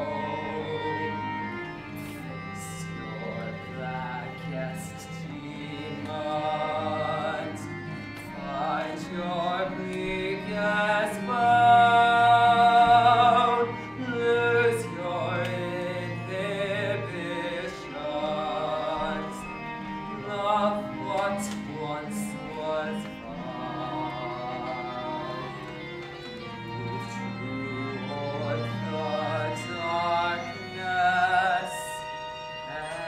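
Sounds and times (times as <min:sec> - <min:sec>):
instrumental accompaniment: 0:00.0 - 0:33.0
man singing operatically: 0:08.3 - 0:25.6, 0:26.7 - 0:32.1.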